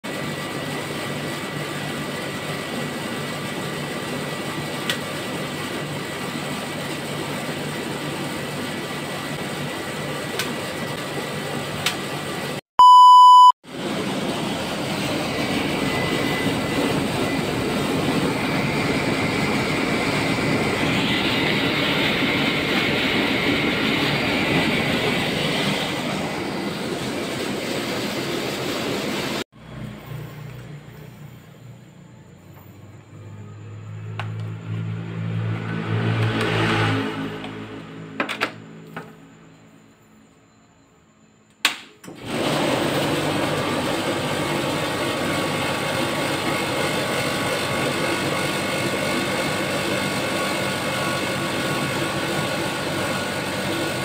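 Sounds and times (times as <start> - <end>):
compressor and fan humming: 0.0 - 35.6, 41.5 - 54.0
loud even beep: 12.8 - 13.6.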